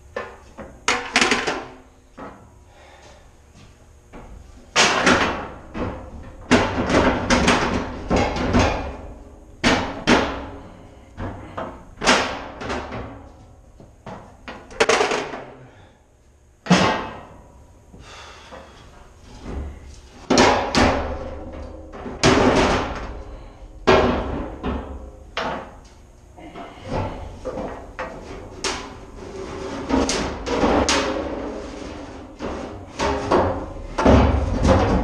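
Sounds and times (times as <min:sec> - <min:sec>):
metal cans clanking and thudding: 0:14.7 - 0:15.5, 0:32.4 - 0:35.0.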